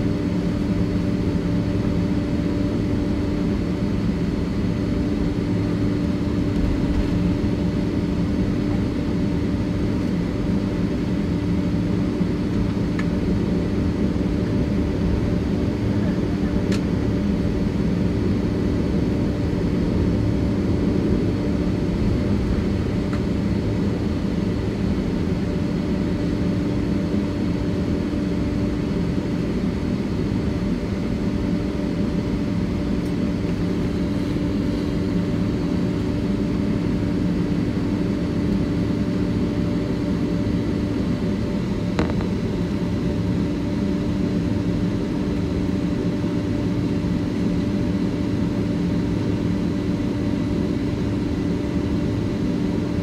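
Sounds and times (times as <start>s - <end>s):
constant low hum: 0.0s - 53.0s
jet engine roar in cabin: 0.0s - 53.0s.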